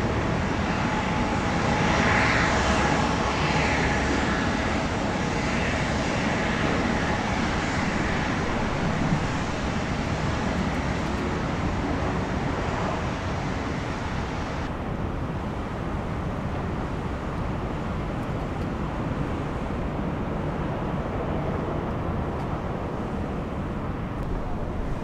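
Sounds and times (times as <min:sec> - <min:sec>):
faint engine whine: 0:00.0 - 0:15.6, 0:21.1 - 0:25.0
jet engines rumbling: 0:00.0 - 0:25.0.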